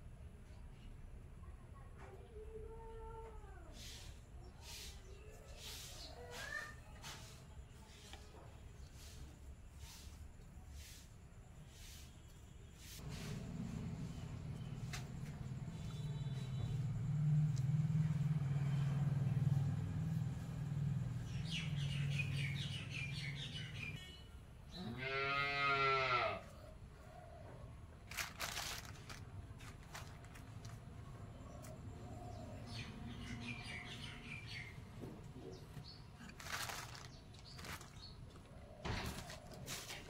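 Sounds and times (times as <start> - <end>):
birds chirping: 11.6 - 25.6, 29.0 - 40.0.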